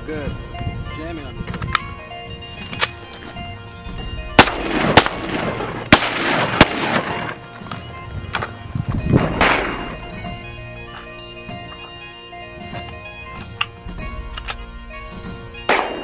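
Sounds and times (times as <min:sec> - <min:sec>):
background music: 0:00.0 - 0:16.0
rifle shots echoing: 0:04.4 - 0:07.8, 0:09.2 - 0:10.1, 0:15.7 - 0:16.0.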